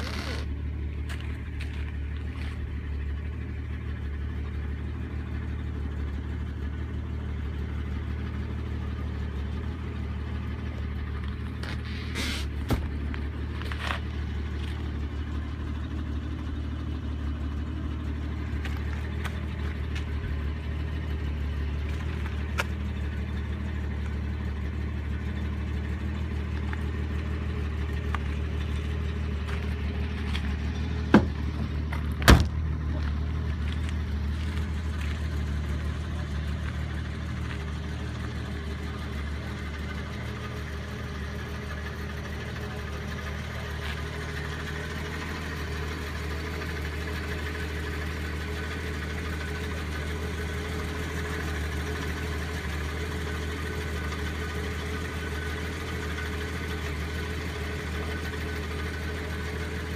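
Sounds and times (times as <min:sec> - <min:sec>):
car engine idling: 0:00.0 - 0:59.9
car door slamming: 0:31.1 - 0:31.4, 0:32.2 - 0:32.6.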